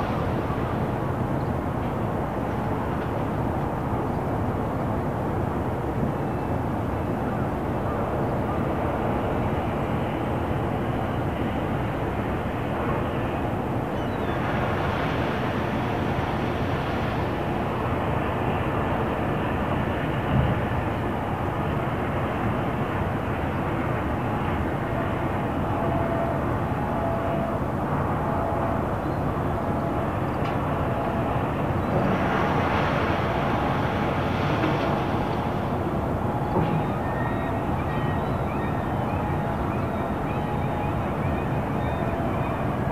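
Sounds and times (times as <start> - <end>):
distant road traffic rumble: 29.7 - 41.8.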